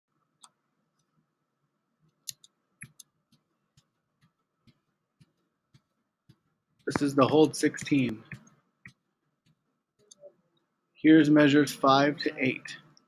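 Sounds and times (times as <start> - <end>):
faint clicking: 2.0 - 5.9.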